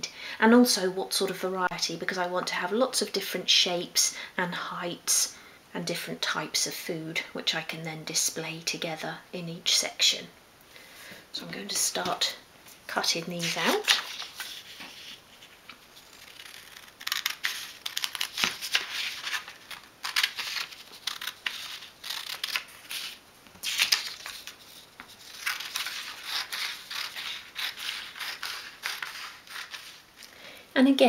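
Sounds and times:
paper rustling: 0:13.4 - 0:30.2
scissors snipping paper: 0:16.0 - 0:24.6, 0:25.3 - 0:30.0.

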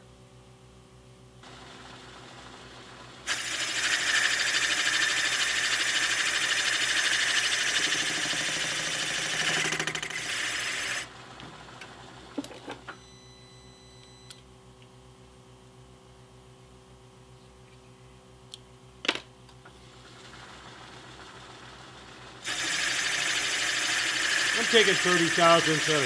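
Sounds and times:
milling machine cutting metal: 0:03.3 - 0:11.1, 0:22.4 - 0:26.0
low machine hum: 0:11.0 - 0:26.0.

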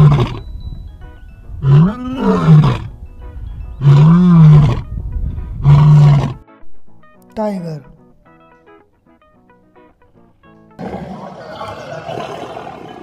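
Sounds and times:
lion roaring: 0:00.0 - 0:00.4, 0:01.6 - 0:02.9, 0:03.8 - 0:04.9, 0:05.6 - 0:06.4, 0:10.8 - 0:13.0.

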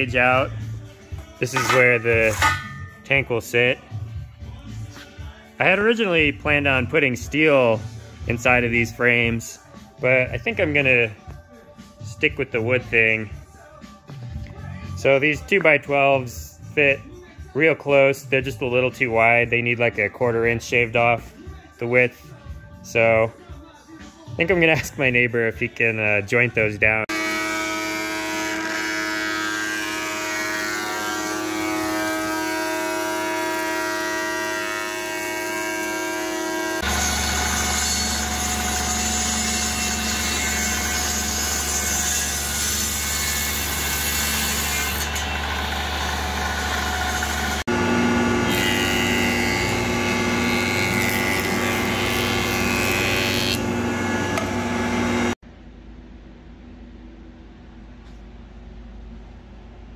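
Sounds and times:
table saw ripping board: 0:01.2 - 0:02.9, 0:27.1 - 0:47.7, 0:48.3 - 0:55.4
jointer cutting board edge: 0:01.4 - 0:03.0, 0:48.3 - 0:55.3.

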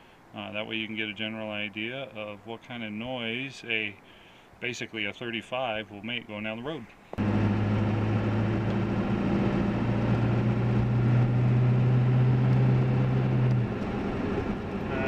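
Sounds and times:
tire drone inside cab: 0:07.2 - 0:15.0.

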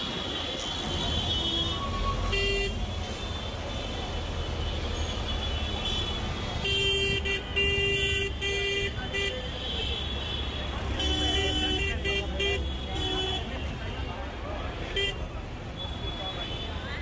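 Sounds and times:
vehicle horns honking: 0:00.0 - 0:04.0, 0:04.6 - 0:14.0
busy street traffic: 0:00.0 - 0:17.0.

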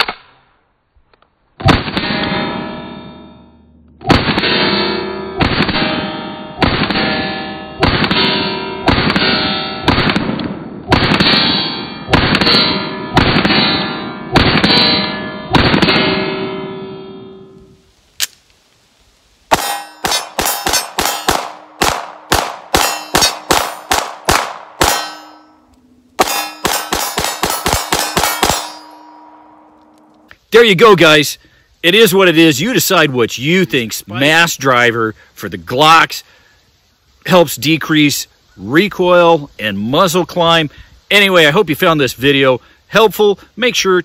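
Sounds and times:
steel targets ringing: 0:01.9 - 0:10.0, 0:11.0 - 0:17.8, 0:19.5 - 0:30.1
pistol shots: 0:04.0 - 0:04.8, 0:05.4 - 0:07.2, 0:07.8 - 0:16.3, 0:19.5 - 0:25.4, 0:26.2 - 0:29.7.

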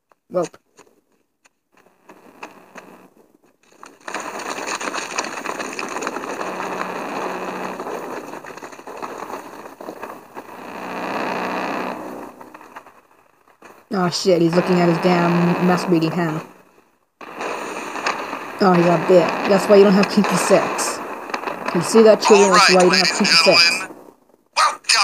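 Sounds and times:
dense rushing noise: 0:22.2 - 0:23.9.

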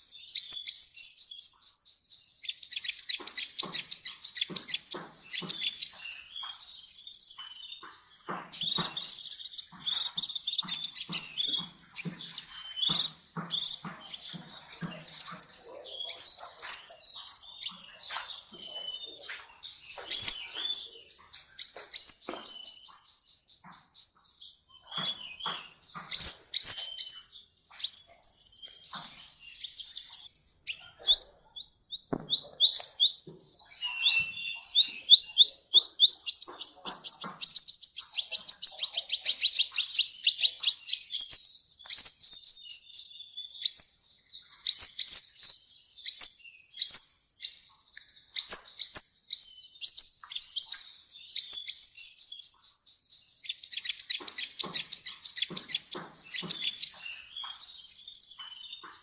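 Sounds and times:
bird singing high notes: 0:57.1 - 0:59.0.

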